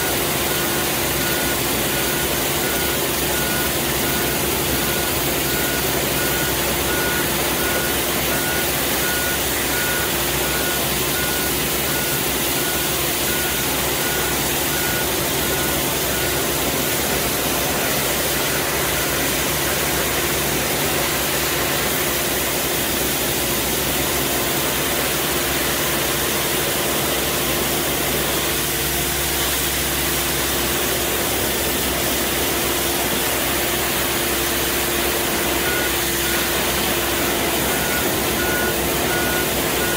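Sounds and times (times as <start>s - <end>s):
rapid warning beep: 0.0s - 21.1s, 34.7s - 39.9s
street sweeper engine running: 0.0s - 39.9s.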